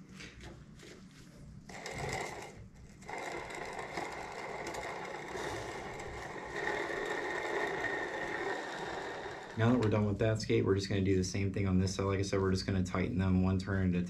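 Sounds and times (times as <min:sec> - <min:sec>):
skate wheels whirring on bearings: 0:01.6 - 0:10.2.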